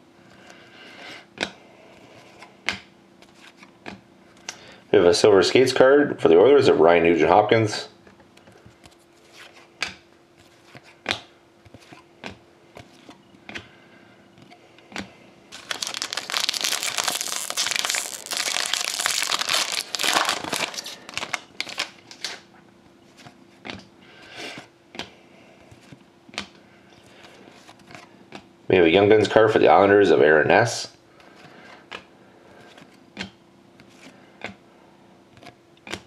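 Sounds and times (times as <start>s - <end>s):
foil wrapper tearing and crinkling: 15.5s - 22.4s.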